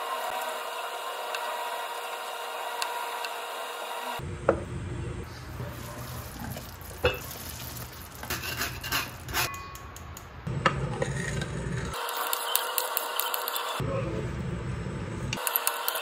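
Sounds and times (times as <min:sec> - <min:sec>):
ladle scraping metal mesh strainer: 0:06.5 - 0:09.6.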